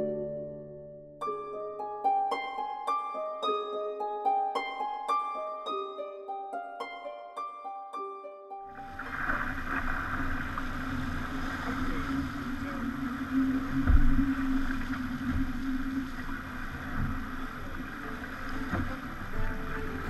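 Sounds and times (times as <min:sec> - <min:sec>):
water and wind rushing: 0:08.7 - 0:20.0
constant low hum: 0:09.0 - 0:20.0.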